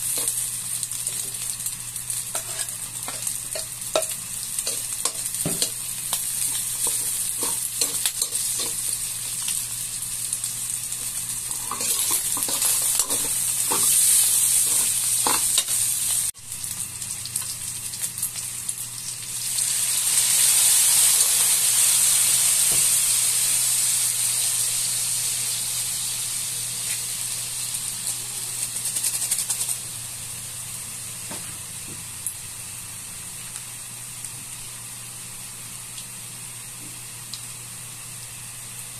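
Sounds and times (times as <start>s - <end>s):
food sizzling in a wok: 0.0s - 38.9s
metal spatula scraping a wok: 2.3s - 2.8s, 11.5s - 15.8s.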